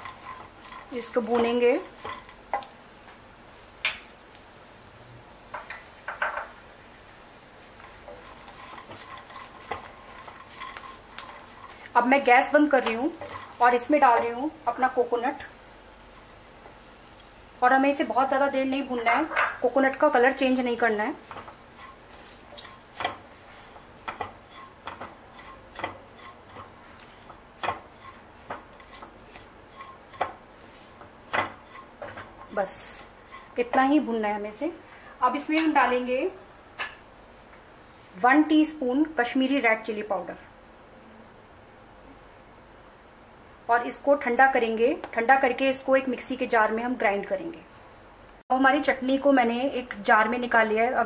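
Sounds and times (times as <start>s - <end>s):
spatula scraping a pan: 0.0s - 2.8s, 7.7s - 16.7s, 18.1s - 33.9s
faint sizzle: 0.0s - 36.5s.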